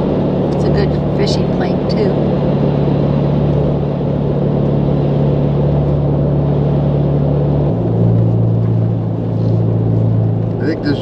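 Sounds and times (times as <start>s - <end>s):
car engine drone: 0.0s - 11.0s
road noise inside car: 0.0s - 11.0s.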